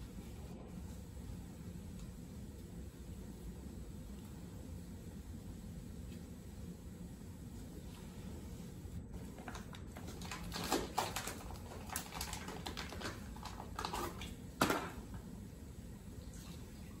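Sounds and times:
cast tape crackling: 9.0s - 15.3s.

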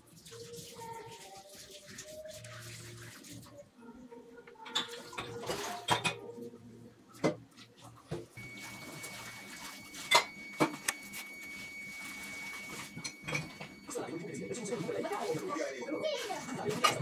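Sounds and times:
faint high whine: 8.4s - 17.0s.

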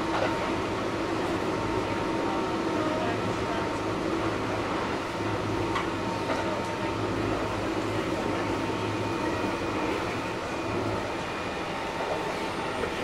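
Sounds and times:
electric train interior hum: 0.0s - 13.0s.

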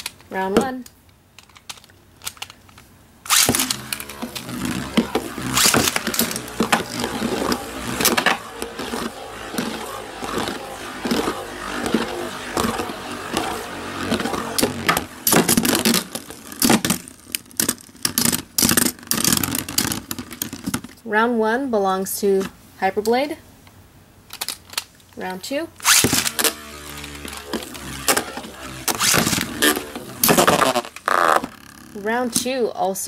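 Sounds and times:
spinning tops launched with string: 3.3s - 20.8s, 25.8s - 32.5s
spinning tops whirring: 3.3s - 20.9s, 25.8s - 32.6s.

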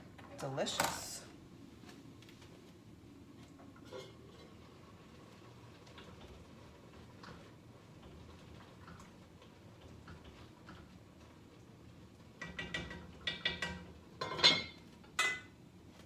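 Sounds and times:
pot and lid clanking: 12.4s - 15.6s.

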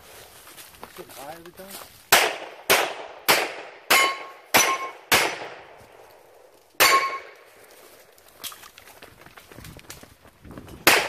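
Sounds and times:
pistol shots: 2.1s - 5.8s, 6.8s - 7.4s
steel target ringing: 3.9s - 5.4s, 6.8s - 7.4s.

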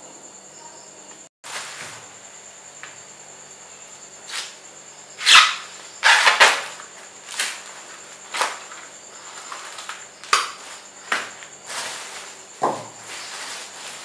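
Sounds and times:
corn husks rustling: 1.4s - 2.2s, 5.2s - 14.0s.

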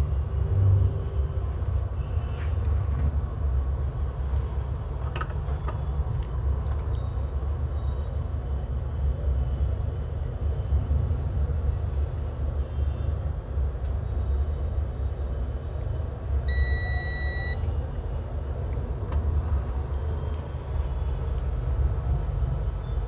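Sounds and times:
high electronic beep: 16.5s - 17.6s.

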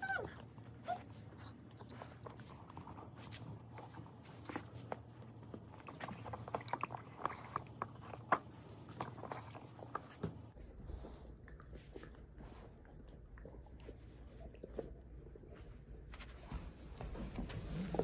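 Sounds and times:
dog chewing toy ball: 0.0s - 16.2s.

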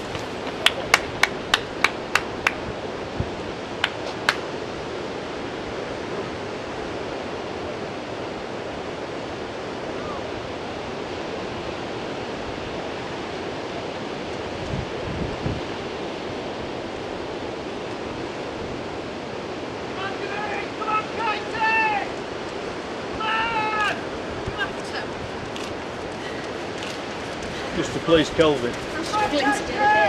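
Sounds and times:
sea surf: 0.0s - 30.0s
sharp hand claps: 0.5s - 2.6s, 3.8s - 4.5s.

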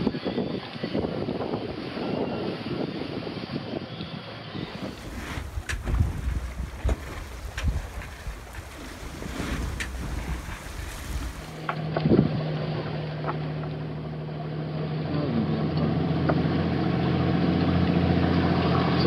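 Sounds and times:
wind noise on microphone: 0.0s - 13.0s
boat engine humming: 4.6s - 19.0s.

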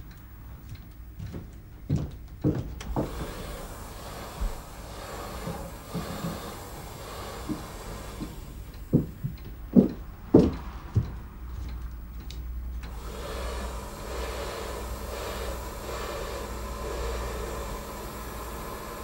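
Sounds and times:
steady low rumble: 5.5s - 13.0s
dull low thuds: 7.5s - 12.8s.

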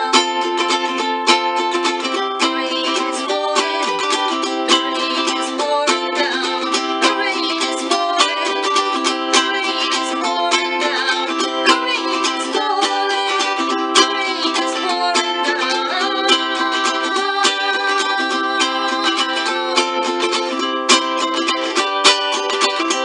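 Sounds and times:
ukulele strumming chords: 0.0s - 23.0s.

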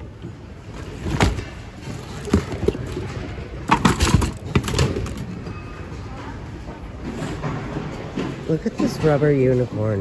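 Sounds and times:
goods knocking and clattering in bin: 1.0s - 5.2s.

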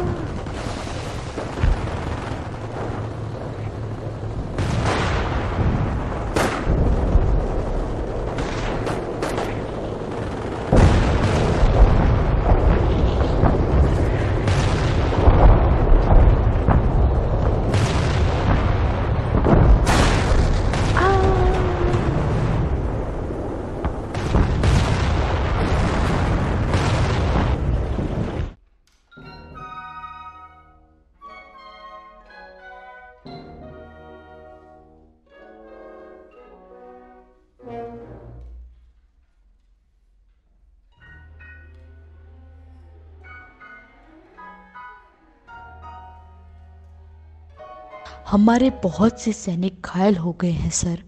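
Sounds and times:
low rumble of explosions: 0.0s - 28.6s
sharp blasts and gunshots: 0.0s - 28.6s.

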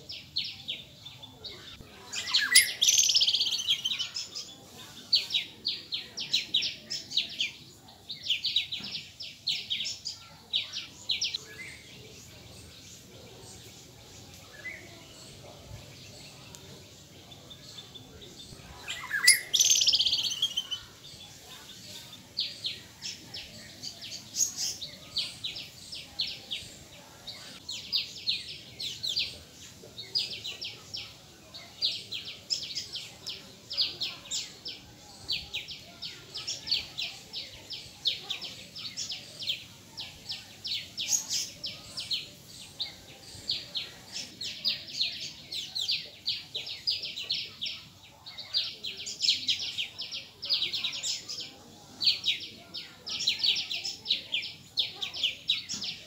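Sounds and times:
high bird-like chirps: 1.7s - 4.4s, 17.7s - 21.1s.

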